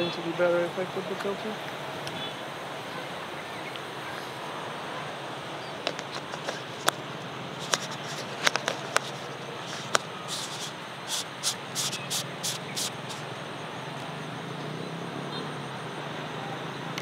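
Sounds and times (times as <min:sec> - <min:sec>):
outdoor background noise: 0:00.0 - 0:17.0
hissy scrapes: 0:06.0 - 0:13.4
handling clicks and taps: 0:07.6 - 0:12.2.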